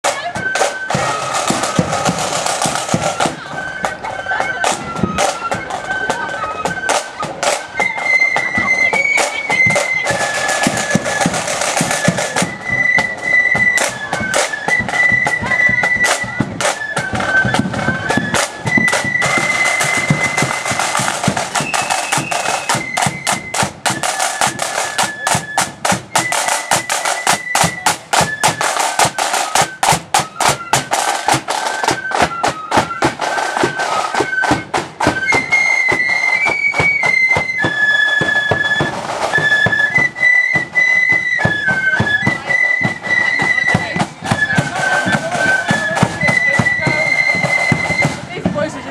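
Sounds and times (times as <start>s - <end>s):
fast side drum strokes: 0.0s - 4.0s, 6.7s - 48.9s
flute band melody: 0.0s - 48.9s.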